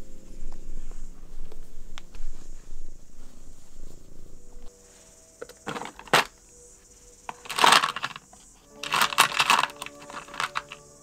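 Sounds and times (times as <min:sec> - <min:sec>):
metal nuts clattering in plastic drawer: 0:05.6 - 0:06.3, 0:07.3 - 0:10.8.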